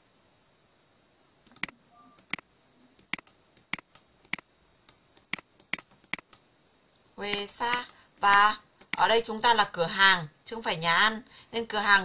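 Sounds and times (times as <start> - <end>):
computer mouse clicking: 1.4 - 2.4, 3.0 - 6.5, 7.3 - 9.1.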